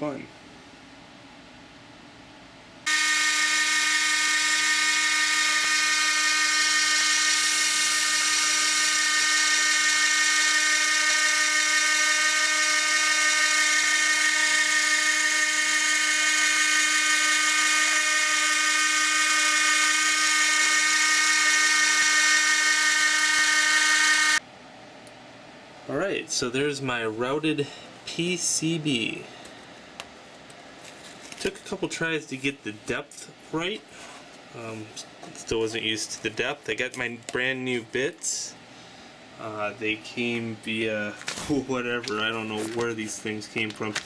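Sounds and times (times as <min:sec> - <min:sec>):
rotary tool high-pitched whine: 0:02.9 - 0:24.4.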